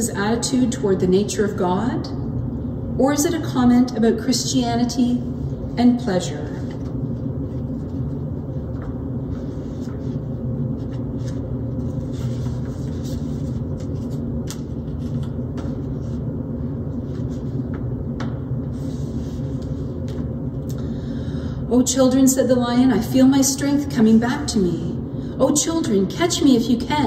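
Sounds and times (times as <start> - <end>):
low background rumble: 0.0 - 27.0
book pages turning: 6.6 - 16.2.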